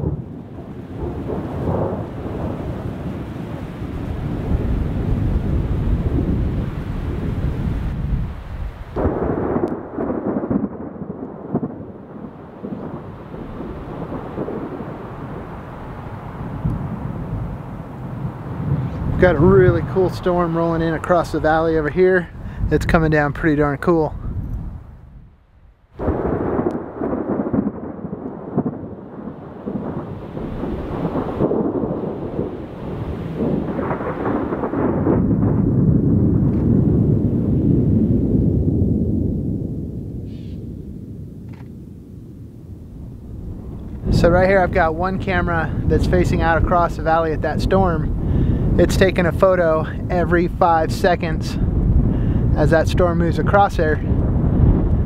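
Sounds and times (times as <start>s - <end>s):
thunder rumbling: 0.0s - 55.0s.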